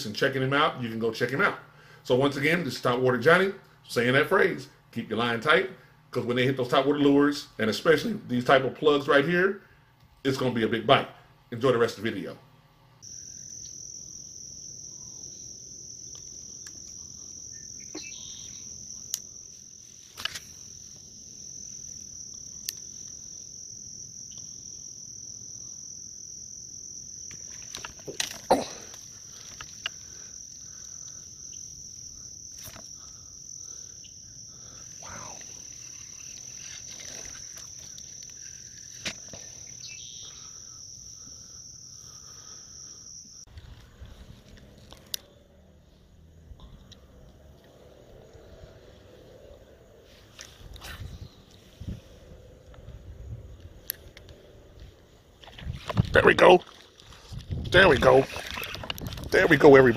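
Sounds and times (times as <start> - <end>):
insects trilling: 13.0 - 59.9.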